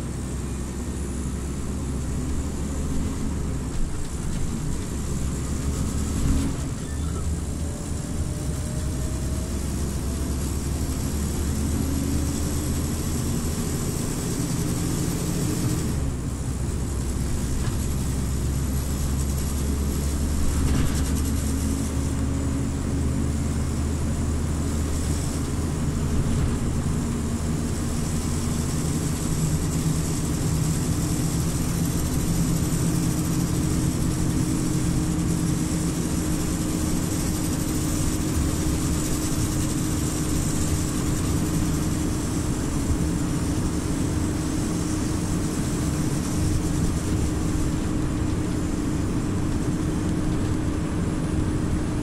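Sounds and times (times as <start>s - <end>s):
bus engine drone: 0.0s - 52.0s.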